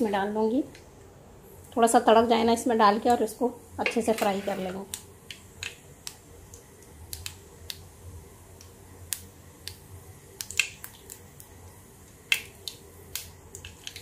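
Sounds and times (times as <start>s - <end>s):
seeds popping in hot oil: 3.0s - 14.0s.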